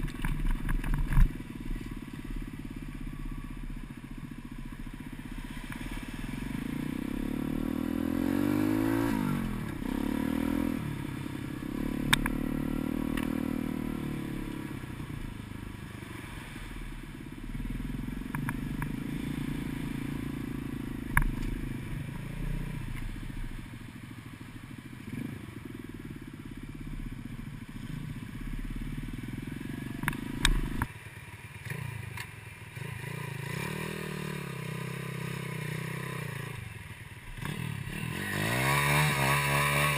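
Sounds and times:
motorbike engine revving: 0:04.7 - 0:15.5, 0:32.7 - 0:36.6, 0:37.3 - 0:39.9.

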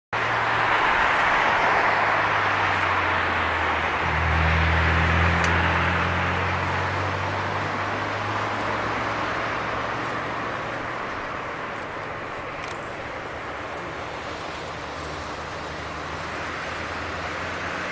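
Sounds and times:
jet engines rushing and whining: 0:00.2 - 0:17.9
low hum: 0:04.0 - 0:10.8.

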